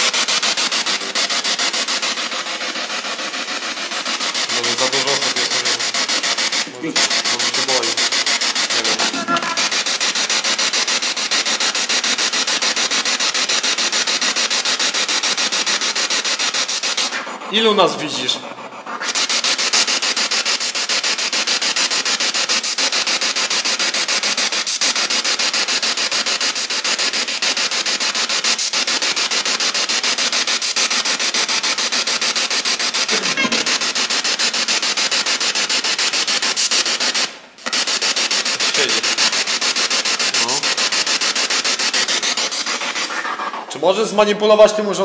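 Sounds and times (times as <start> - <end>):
pulsing radio static: 4.5 - 9.9, 33.1 - 33.9.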